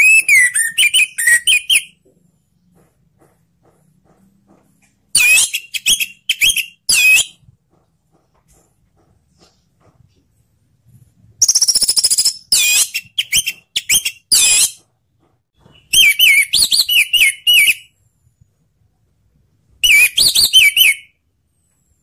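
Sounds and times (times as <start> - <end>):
thrush singing whistled notes: 19.8 - 21.1.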